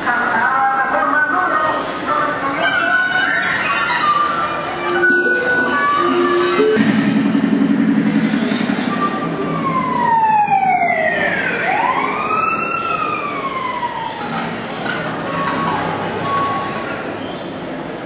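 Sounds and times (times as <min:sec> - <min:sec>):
sliding siren-like electronic tone: 0:02.5 - 0:14.3
low rapid electronic buzz: 0:05.0 - 0:09.3.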